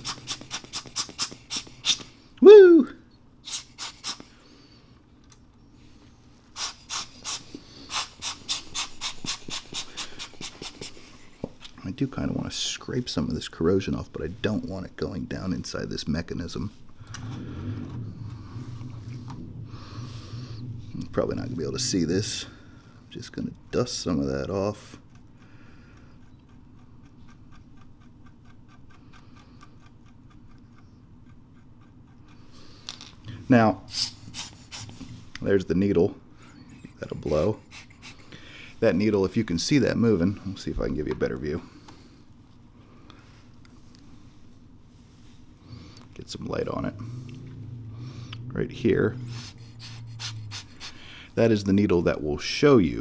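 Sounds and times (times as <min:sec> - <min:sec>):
hand air blower puffing: 0:00.0 - 0:02.2, 0:03.4 - 0:04.4, 0:06.5 - 0:11.6, 0:33.9 - 0:35.1, 0:36.6 - 0:38.7, 0:49.2 - 0:51.3.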